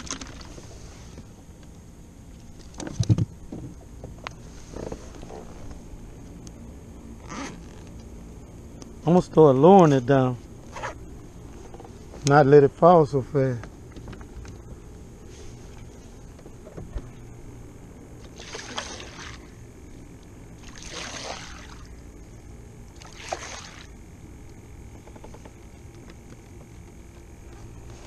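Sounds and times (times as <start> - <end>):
water sloshing against hull: 0.0 - 6.2, 13.8 - 28.0
low steady hum: 0.0 - 28.0.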